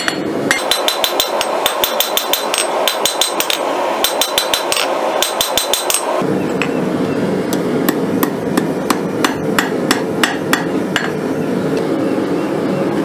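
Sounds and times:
hammer striking chisel on steel: 0:00.0 - 0:06.1, 0:07.5 - 0:11.2.

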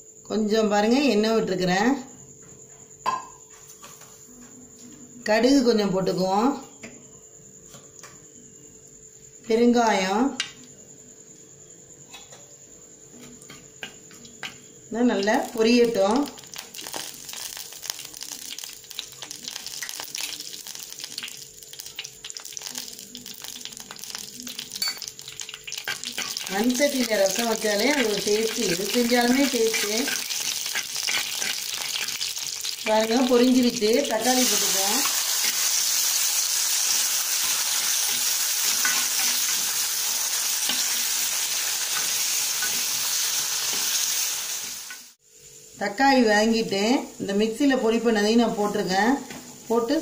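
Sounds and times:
seeds sizzling and popping in oil: 0:13.6 - 0:45.2.

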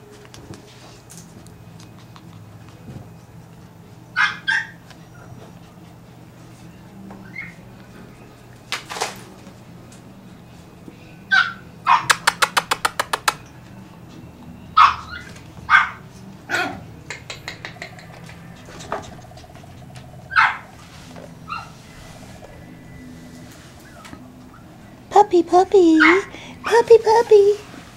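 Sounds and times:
puppies yipping and barking: 0:04.2 - 0:04.8, 0:11.3 - 0:12.4, 0:14.8 - 0:16.0, 0:16.6 - 0:24.8, 0:26.0 - 0:26.8.

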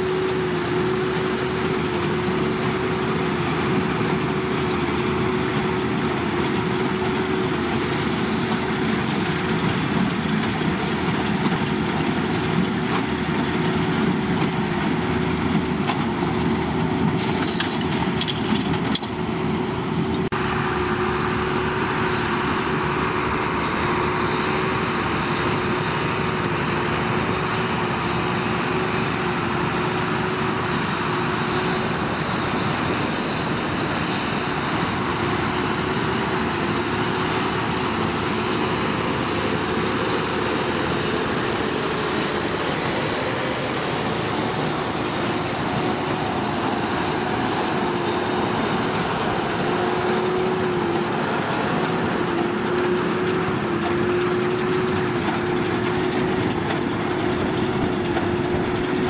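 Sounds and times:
tractor running under load: 0:00.0 - 0:59.0
baler machinery hum: 0:19.5 - 0:59.0.

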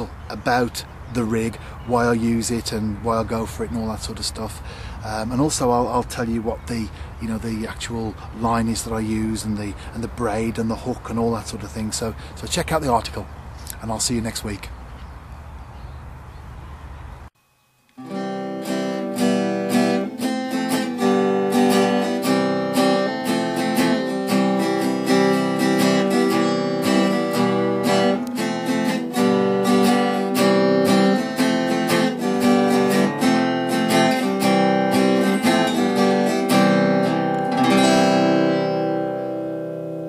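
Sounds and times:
acoustic guitar plucking: 0:18.0 - 0:40.0.

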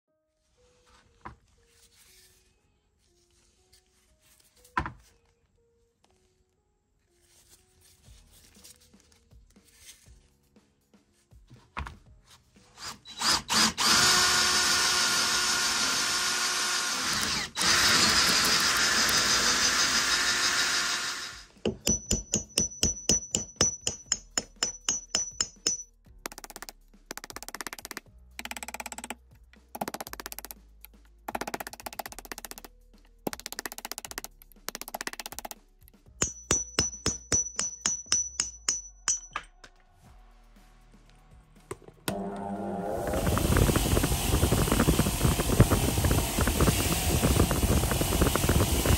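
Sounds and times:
power tool running: 0:12.8 - 0:21.5, 0:42.1 - 0:48.9
hammer striking steel punch: 0:21.6 - 0:25.8, 0:36.2 - 0:39.6.

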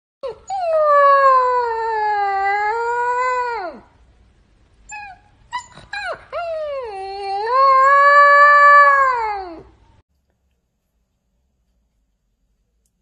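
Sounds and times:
puppy howling: 0:00.2 - 0:03.9, 0:04.9 - 0:09.7.

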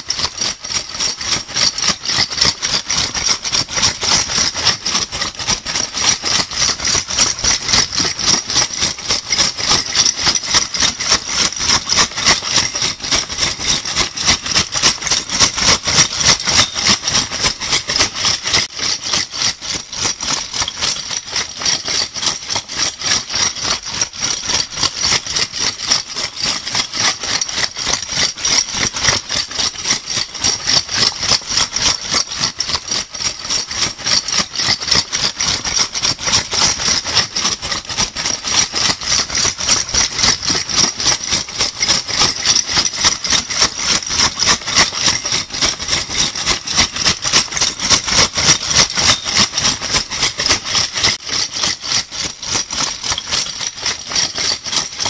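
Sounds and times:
bottle caps jingling: 0:16.1 - 0:16.8, 0:48.5 - 0:51.8.

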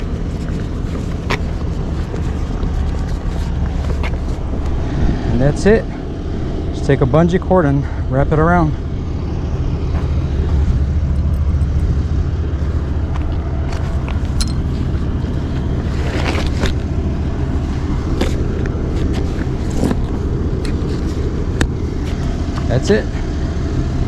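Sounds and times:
tarp rustling: 0:00.0 - 0:04.6, 0:12.6 - 0:22.3
vehicle engine idling: 0:00.0 - 0:24.0.

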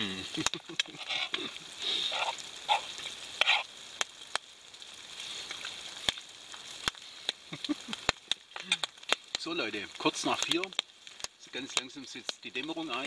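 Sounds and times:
chewing and mouth noises: 0:00.3 - 0:04.4.

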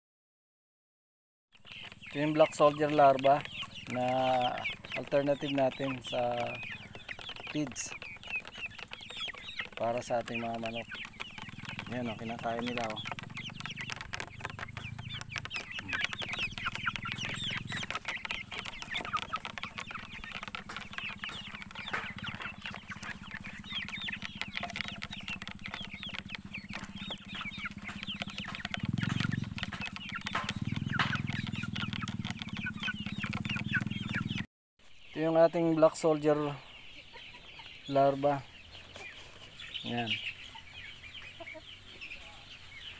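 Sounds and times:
beaks pecking plastic trough: 0:01.6 - 0:34.4
hens clucking: 0:01.6 - 0:42.9.

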